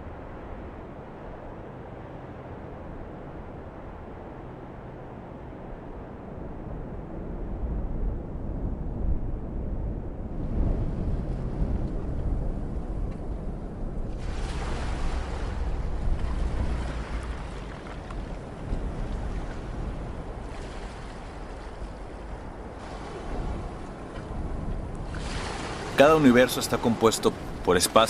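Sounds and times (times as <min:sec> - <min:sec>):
wind rumble on microphone: 0:00.0 - 0:28.0
ocean surf breaking: 0:14.1 - 0:28.0.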